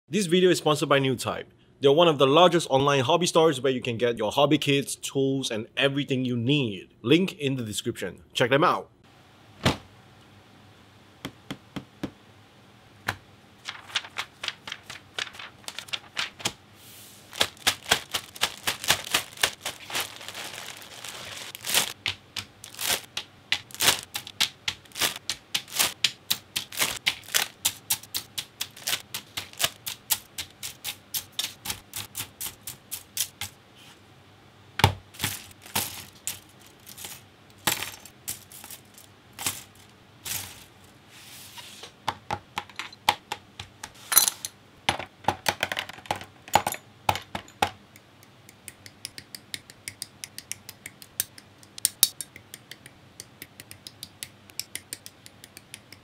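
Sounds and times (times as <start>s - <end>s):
plastic bag crinkling and tearing: 13.7s - 16.5s, 17.2s - 26.0s, 26.6s - 30.0s, 35.2s - 37.2s.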